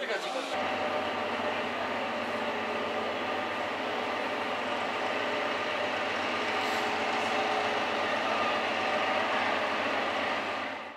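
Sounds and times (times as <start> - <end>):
diesel locomotive idling: 0.0 - 10.9.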